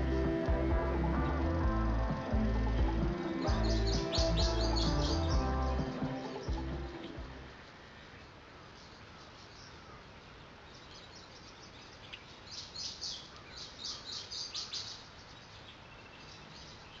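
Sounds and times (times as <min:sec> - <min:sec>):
high bird chirps: 0:00.0 - 0:07.6
faint outdoor ambience: 0:00.0 - 0:17.0.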